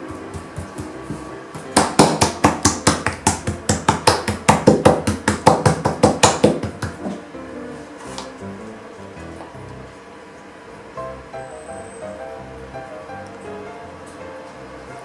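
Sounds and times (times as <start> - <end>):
hands slapping dough: 0.0 - 7.2.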